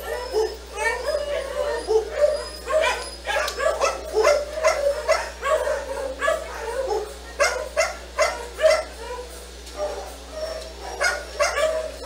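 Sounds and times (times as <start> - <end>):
dog barking: 0.0 - 12.0.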